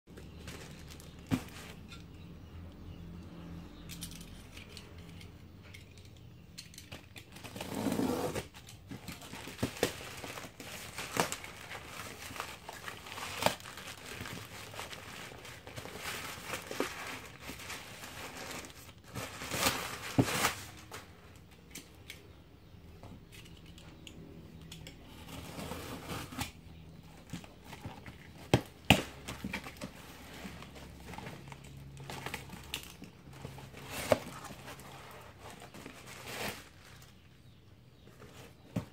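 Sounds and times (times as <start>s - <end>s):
plastic wrap crinkling and tearing: 7.3s - 21.1s, 25.2s - 37.2s.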